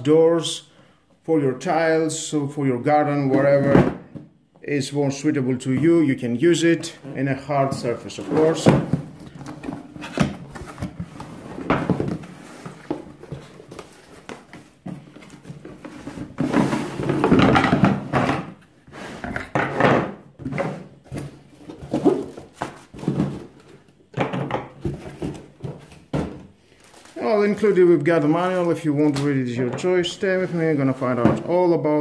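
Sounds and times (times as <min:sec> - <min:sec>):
plastic parts knocking on table: 0:17.0 - 0:18.5, 0:24.1 - 0:26.5.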